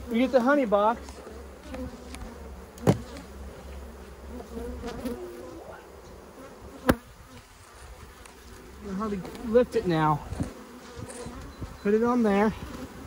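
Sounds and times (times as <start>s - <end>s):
honey bees buzzing: 0.0s - 13.0s
wooden hive boxes knocking: 1.6s - 3.2s.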